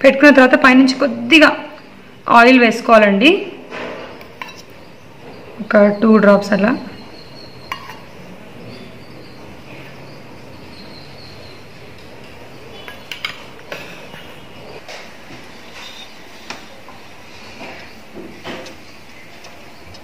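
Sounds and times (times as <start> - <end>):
utensils clinking on pan and dishes: 4.3 - 4.7.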